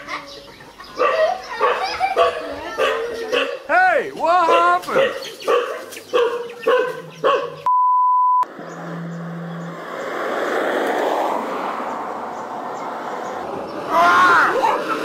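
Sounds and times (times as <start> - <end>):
dog yelping: 1.0 - 3.7, 4.4 - 7.7
electronic beep: 7.7 - 8.5.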